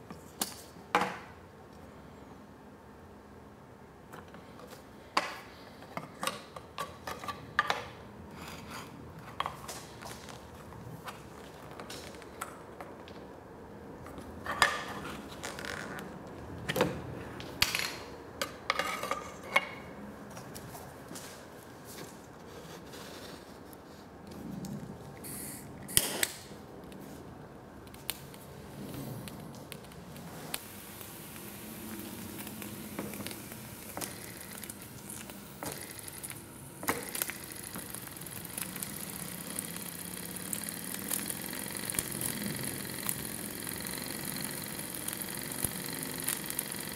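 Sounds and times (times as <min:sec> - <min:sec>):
burner flame hissing: 0:28.2 - 0:46.9.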